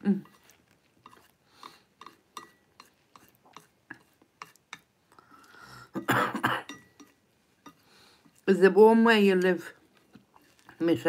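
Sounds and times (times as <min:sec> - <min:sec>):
chopsticks tapping a plate: 0:00.2 - 0:04.9, 0:06.7 - 0:07.8.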